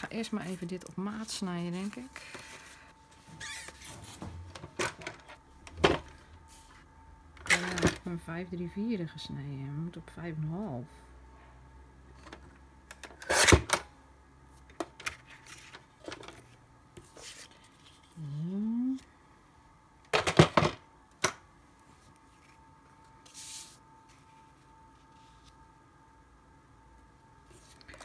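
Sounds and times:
person humming: 18.2 - 19.1.

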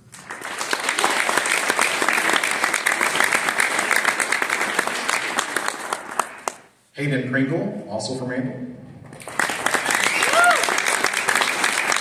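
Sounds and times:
audience applauding: 0.0 - 6.7, 9.2 - 12.0.

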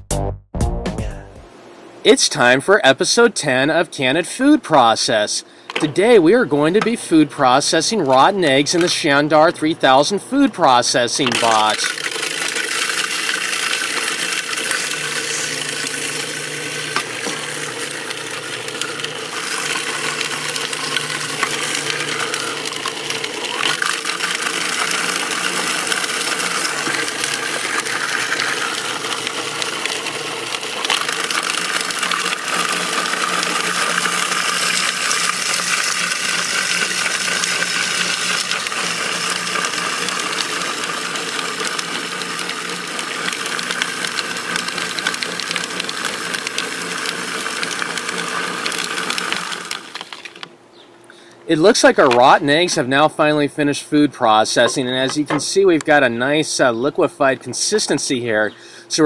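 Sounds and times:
food processor motor running: 8.2 - 50.5.

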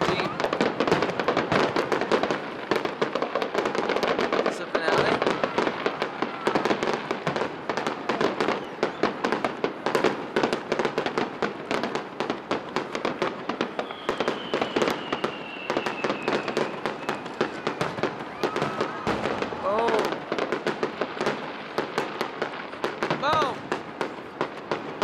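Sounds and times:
faint descending whistle: 13.8 - 19.1.

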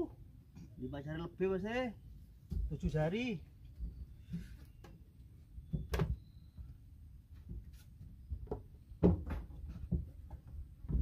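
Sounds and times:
knocks on wooden deck: 8.4 - 11.0.

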